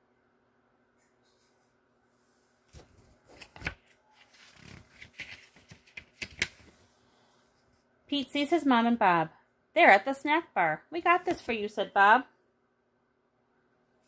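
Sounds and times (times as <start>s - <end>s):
paper pages rustling: 2.7s - 6.9s.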